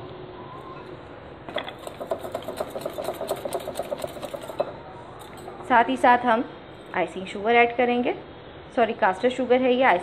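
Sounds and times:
whisk clicking against glass bowl: 0:01.8 - 0:04.7.

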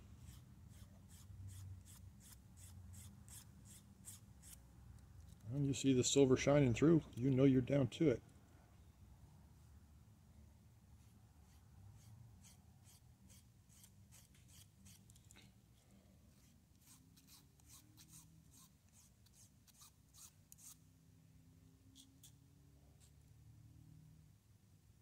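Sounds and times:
file scratching strokes: 0:11.0 - 0:15.2, 0:16.3 - 0:20.8.

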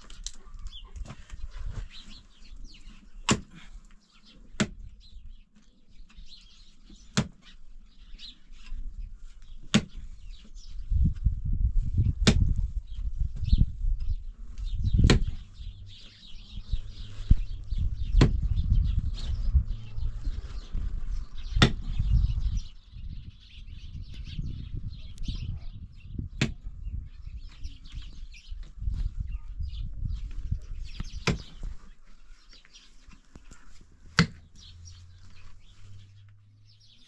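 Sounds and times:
dull thuds: 0:09.6 - 0:10.2, 0:12.0 - 0:12.6, 0:14.9 - 0:15.5, 0:18.0 - 0:18.7, 0:21.6 - 0:22.0, 0:31.0 - 0:31.8, 0:34.0 - 0:34.7
earth and stones scraping: 0:14.0 - 0:22.7, 0:30.1 - 0:36.3.

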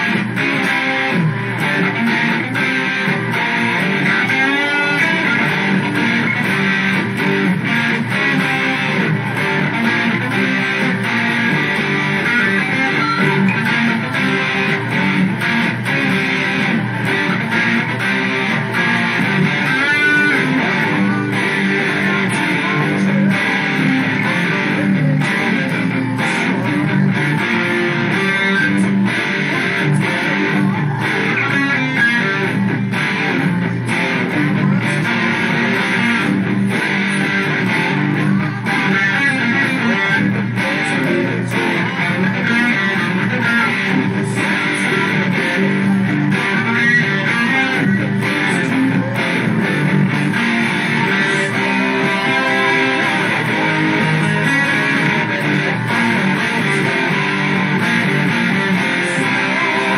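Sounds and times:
electric guitar picked notes: 0:00.0 - 0:59.9.

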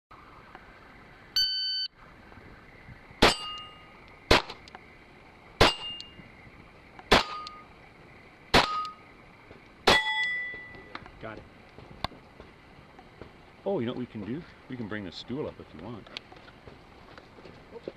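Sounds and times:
shot timer beep: 0:01.4 - 0:01.9
steel plate ringing: 0:03.2 - 0:03.9, 0:05.6 - 0:06.2, 0:08.6 - 0:09.0, 0:09.9 - 0:10.9
pistol shots: 0:04.3 - 0:04.6, 0:05.6 - 0:06.1, 0:07.1 - 0:07.6, 0:08.5 - 0:09.0.

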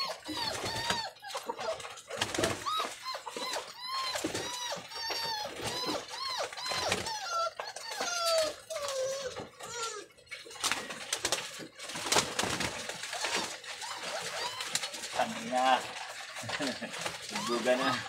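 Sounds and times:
pigeons calling: 0:00.0 - 0:09.8, 0:10.6 - 0:18.0
wings flapping: 0:02.1 - 0:02.6, 0:10.6 - 0:15.5.

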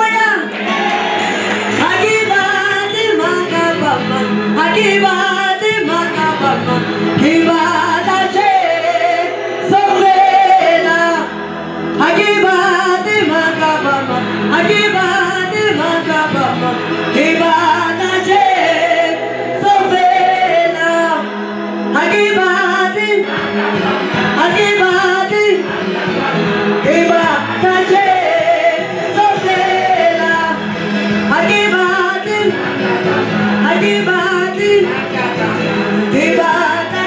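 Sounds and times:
choir singing in harmony: 0:00.5 - 0:37.0.

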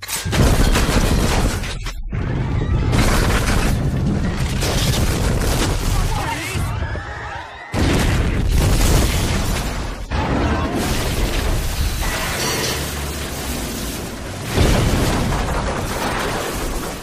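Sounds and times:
rumble and crash of debris: 0:00.0 - 0:07.1, 0:07.8 - 0:17.0
explosion boom: 0:07.8 - 0:17.0.

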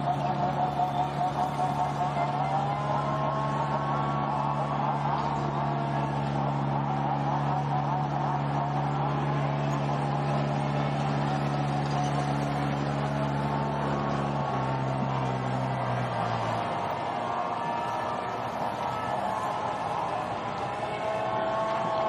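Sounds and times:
motocross bike engines running: 0:00.0 - 0:22.0
steady low drone: 0:00.0 - 0:22.0.

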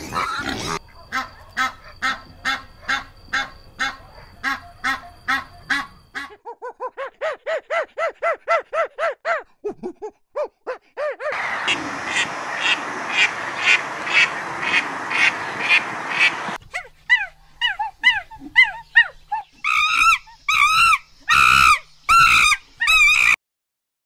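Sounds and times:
duck quacking: 0:00.0 - 0:06.4, 0:11.4 - 0:16.6
monkey calling: 0:10.4 - 0:23.4
steady rushing noise: 0:11.4 - 0:16.6.

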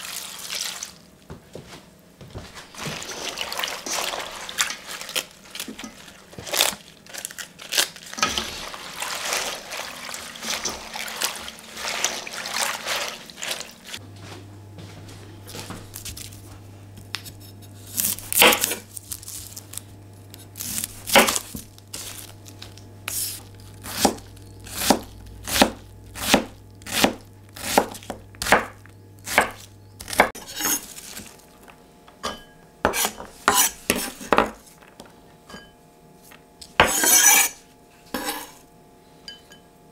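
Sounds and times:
leaves swished in bowl of water: 0:00.0 - 0:01.0, 0:02.6 - 0:14.0
knife chopping on wooden board: 0:21.0 - 0:22.2, 0:23.1 - 0:30.8, 0:32.8 - 0:34.6, 0:36.8 - 0:37.5.

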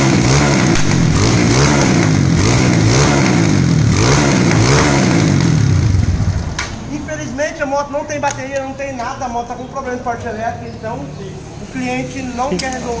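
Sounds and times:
motorcycle engine revving: 0:00.0 - 0:06.9.

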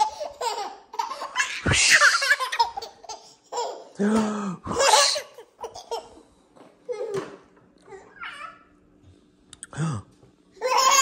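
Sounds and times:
baby laughing: 0:00.0 - 0:04.0, 0:04.7 - 0:06.2, 0:10.6 - 0:11.0.

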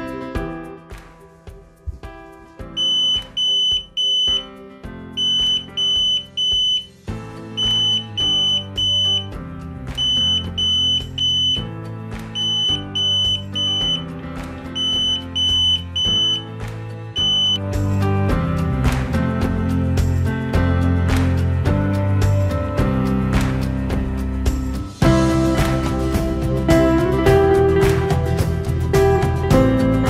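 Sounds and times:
background music: 0:00.0 - 0:30.0
fire alarm beeping: 0:02.8 - 0:04.5, 0:05.2 - 0:07.0, 0:07.6 - 0:09.4, 0:10.0 - 0:11.7, 0:12.4 - 0:14.1, 0:14.8 - 0:16.5, 0:17.2 - 0:17.6.

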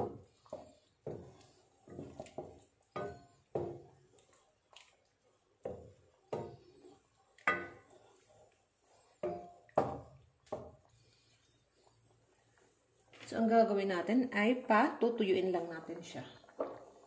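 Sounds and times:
wooden spoon knocking a pan: 0:00.0 - 0:03.9, 0:05.6 - 0:06.6, 0:07.4 - 0:07.9, 0:09.2 - 0:10.8
sauce simmering: 0:00.0 - 0:17.0.

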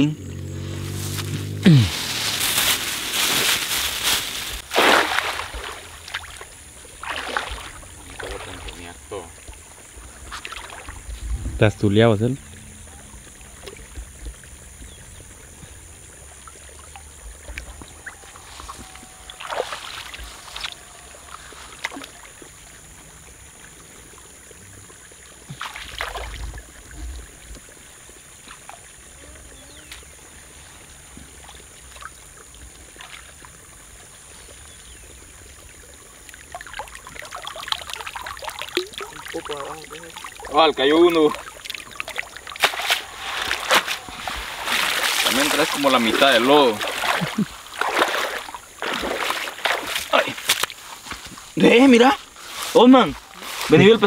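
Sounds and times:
water splashing in a muddy pool: 0:00.8 - 0:54.0
water dripping: 0:12.0 - 0:23.3, 0:34.5 - 0:51.4.

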